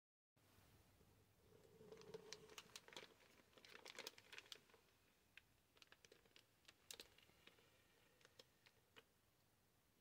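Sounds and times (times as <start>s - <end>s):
plastic bag crinkling: 1.5s - 9.0s.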